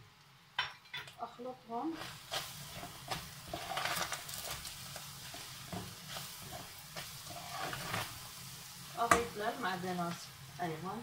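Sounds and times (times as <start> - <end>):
meat sizzling: 1.7 - 11.0
ladle scraping metal pot: 2.0 - 4.6, 5.3 - 8.2.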